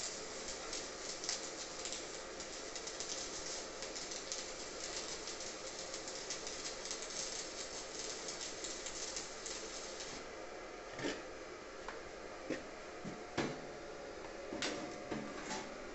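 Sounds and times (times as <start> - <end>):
welding arc crackling: 0.0 - 10.3.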